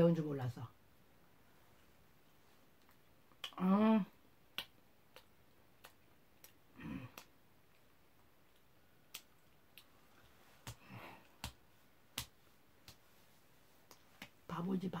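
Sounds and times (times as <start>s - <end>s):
lip and tongue clicks chewing: 4.5s - 7.9s
faint breath: 10.8s - 11.4s.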